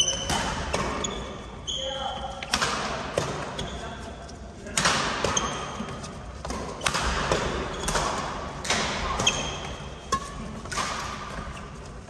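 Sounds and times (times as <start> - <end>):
rackets striking shuttlecock: 0.0 - 1.1, 4.7 - 11.5
shoes squeaking on floor: 0.0 - 2.3, 5.3 - 6.9, 7.5 - 8.0, 9.0 - 10.5.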